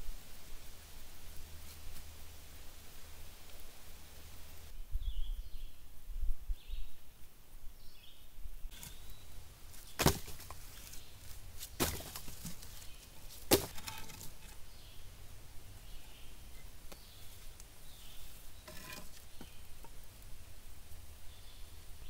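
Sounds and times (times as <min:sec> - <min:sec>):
faint bird chirps: 0:04.9 - 0:05.9
wooden sticks clacking: 0:11.6 - 0:14.6.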